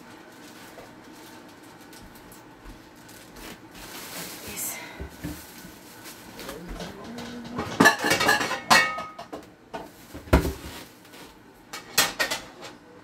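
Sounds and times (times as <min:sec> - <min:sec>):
dishes and pots clattering: 0:06.6 - 0:10.7, 0:11.7 - 0:12.8.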